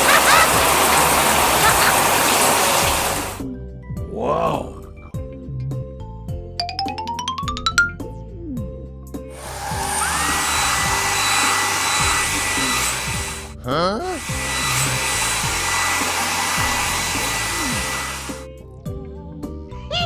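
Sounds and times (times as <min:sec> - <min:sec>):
soft background music: 0:03.4 - 0:20.0
air blower rushing: 0:09.3 - 0:18.5.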